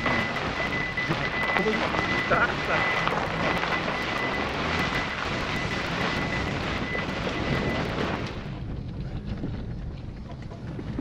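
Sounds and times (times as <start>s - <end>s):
car driving over gravel: 0.0s - 11.0s.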